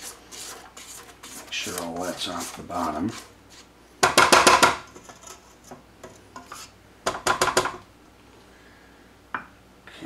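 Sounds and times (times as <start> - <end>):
spatula scraping metal bowl: 0.0 - 3.7, 5.0 - 6.8.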